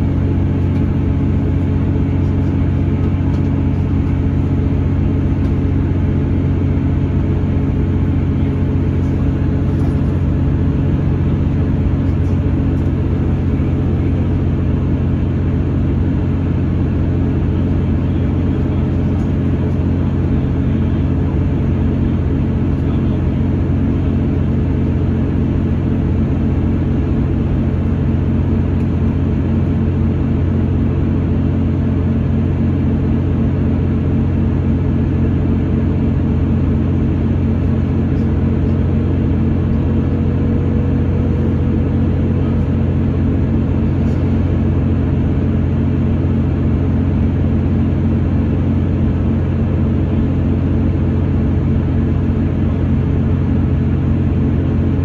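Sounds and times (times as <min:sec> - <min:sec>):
diesel engine drone: 0:00.0 - 0:55.0.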